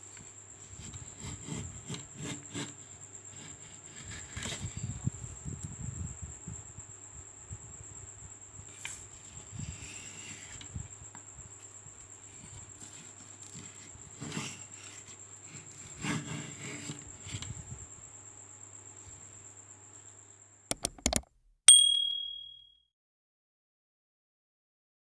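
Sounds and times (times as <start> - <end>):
hand plane scraping wood: 14.1 - 14.8.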